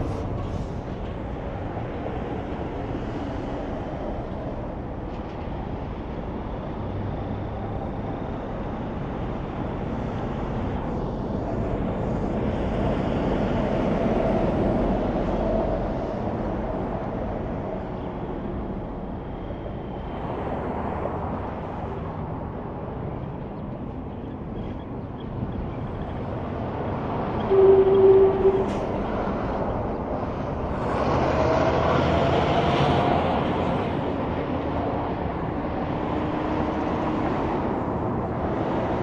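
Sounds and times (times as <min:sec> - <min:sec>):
passing vehicle tyre and engine noise: 0:25.8 - 0:39.0.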